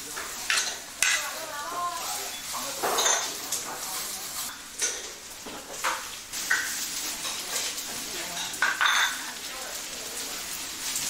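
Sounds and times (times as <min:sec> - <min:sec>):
metal utensil scraping pan: 0:00.0 - 0:01.4
pancake sizzling on griddle: 0:00.0 - 0:11.0.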